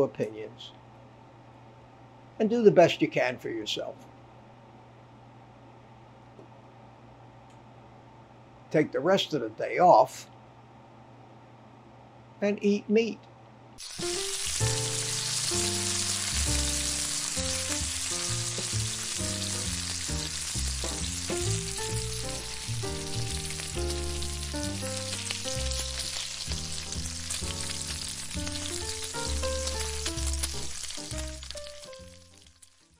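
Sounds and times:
bacon sizzling in a frying pan: 13.8s - 32.9s
low background music: 13.8s - 32.9s.

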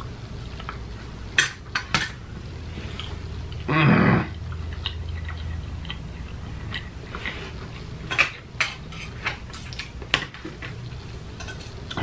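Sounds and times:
chewing clicks: 4.3s - 7.3s.

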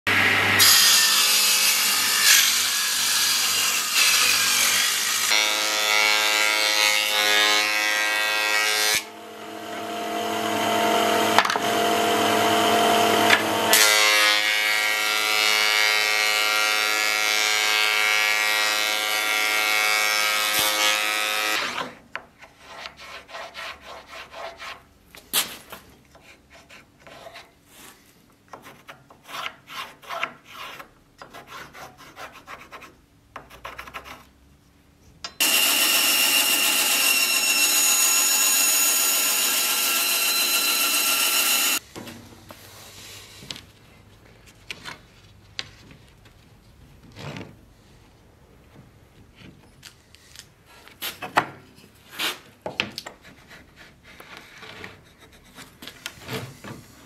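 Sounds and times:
table saw cutting wood: 0.1s - 21.9s, 35.4s - 41.8s.

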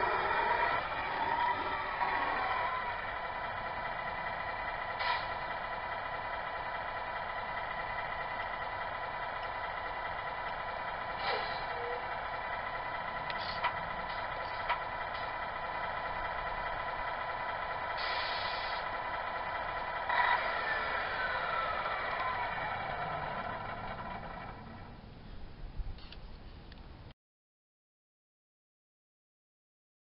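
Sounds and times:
diesel engine idling through speaker: 0.0s - 25.7s
air-brake hiss: 5.0s - 5.4s, 11.2s - 11.8s, 13.4s - 13.7s, 18.0s - 18.9s.

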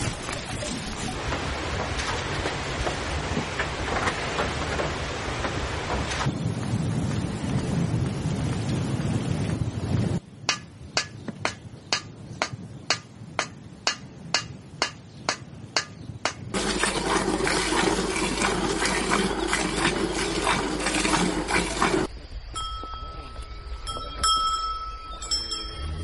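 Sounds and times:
sharp evenly spaced knocks: 10.4s - 16.6s.

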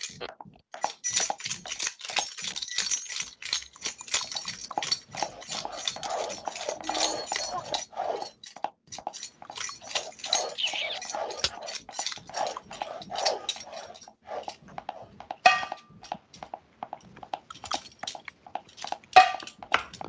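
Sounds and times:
brief squeak: 6.7s - 7.8s, 10.2s - 11.6s
knocks clicks and smacks: 8.5s - 20.0s.

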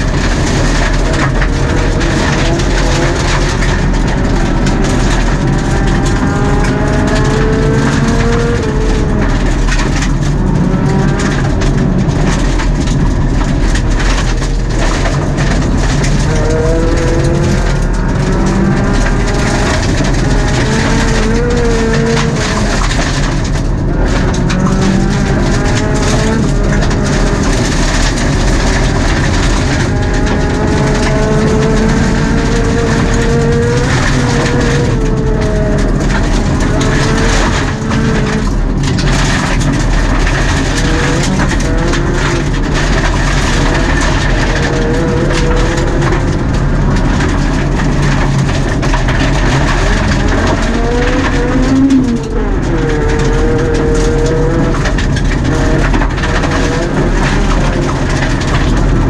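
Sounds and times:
gravel rush from tyres: 0.0s - 59.0s
rally car engine revving: 0.0s - 59.0s.

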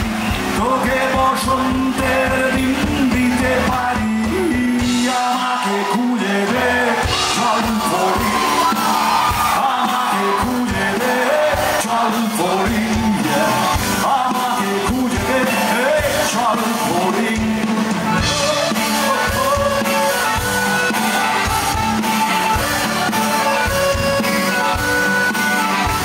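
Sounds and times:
electric bass: 0.0s - 5.2s, 10.4s - 26.0s
drum kit playing a steady beat: 0.0s - 26.0s
man singing into a microphone: 0.4s - 20.9s.

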